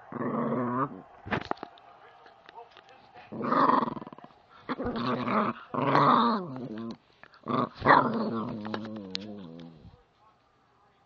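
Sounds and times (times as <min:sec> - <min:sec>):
puppy growling: 0:00.0 - 0:01.0, 0:03.3 - 0:10.0.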